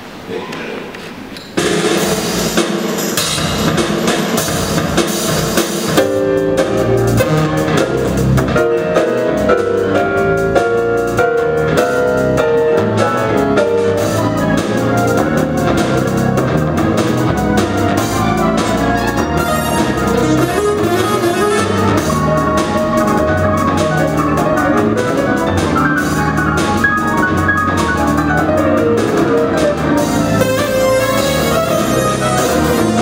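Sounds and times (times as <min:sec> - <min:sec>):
fast drum beat: 0:01.6 - 0:33.0
keyboard melody: 0:06.0 - 0:33.0.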